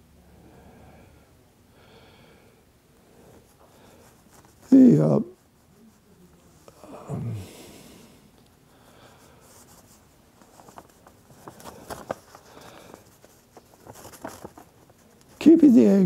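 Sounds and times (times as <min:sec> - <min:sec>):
clicks and rustling on microphone: 0:10.4 - 0:15.5
man's voice: 0:15.4 - 0:16.0.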